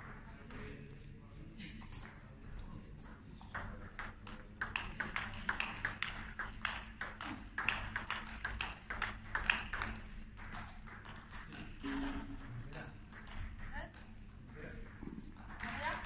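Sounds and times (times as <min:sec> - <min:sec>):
table tennis ball clicking: 0:03.6 - 0:11.7.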